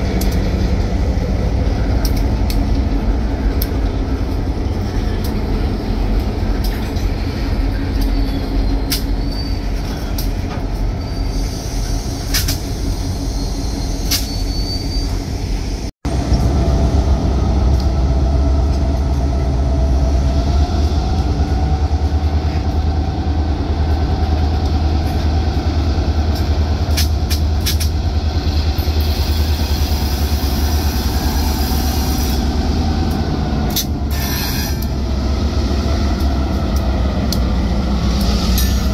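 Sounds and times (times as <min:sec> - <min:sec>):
steel wheels rolling on rails: 0:00.0 - 0:15.2, 0:16.1 - 0:38.9
diesel train engine rumble: 0:00.0 - 0:38.9
faint high wheel squeals: 0:07.8 - 0:10.1, 0:10.9 - 0:12.2, 0:12.8 - 0:15.3.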